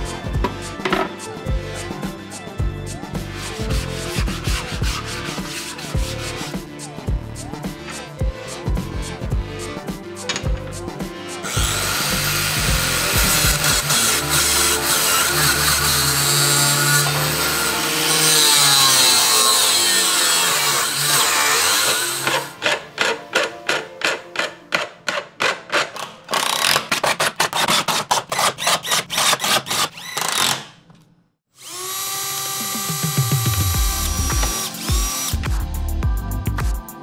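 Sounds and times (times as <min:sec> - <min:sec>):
hand file on metal: 0:03.3 - 0:06.9, 0:11.4 - 0:25.9, 0:26.7 - 0:30.0
drill boring into plywood: 0:11.4 - 0:23.5, 0:28.3 - 0:30.7, 0:31.6 - 0:35.4
angle grinder cutting metal: 0:11.4 - 0:24.5, 0:31.6 - 0:35.5.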